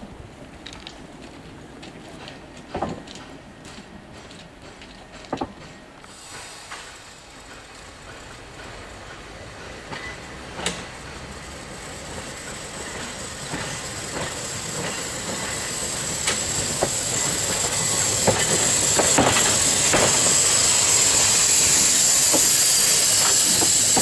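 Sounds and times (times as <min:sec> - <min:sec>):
tram running hiss: 0:00.0 - 0:24.0
tram wheels clicking over rail joints: 0:00.4 - 0:24.0.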